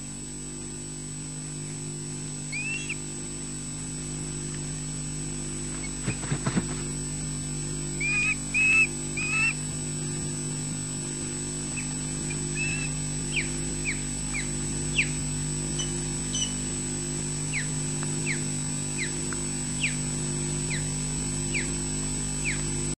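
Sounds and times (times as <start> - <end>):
steady electrical hum: 0.0 - 22.9
ospreys calling: 2.4 - 3.1, 5.8 - 6.7, 7.9 - 9.6, 11.6 - 16.7, 17.5 - 20.1.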